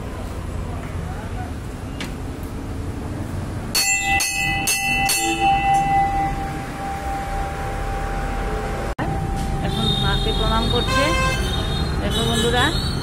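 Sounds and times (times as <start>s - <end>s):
temple bell ringing: 3.7s - 10.8s.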